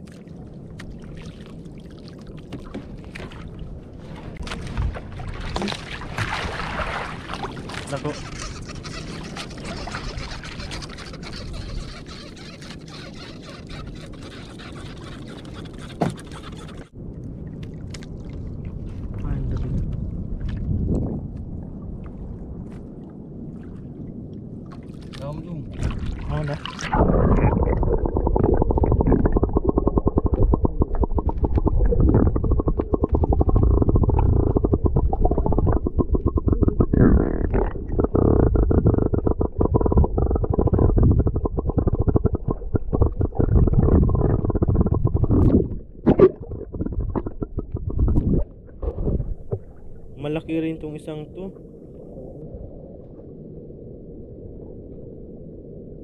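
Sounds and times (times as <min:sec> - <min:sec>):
water lapping against boat hull: 0:00.0 - 0:28.0, 0:28.7 - 0:50.4
muffled underwater rumble: 0:16.6 - 0:56.0
rapid even ticking: 0:28.4 - 0:45.6.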